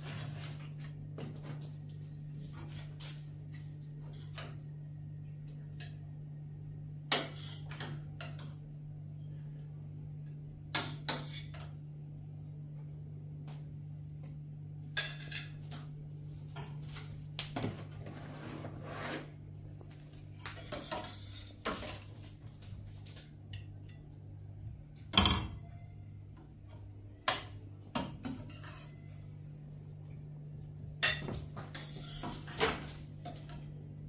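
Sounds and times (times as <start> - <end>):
metal spoon scraping pots: 20.5 - 22.2, 27.3 - 29.3, 31.0 - 32.7
low hum: 21.2 - 32.2.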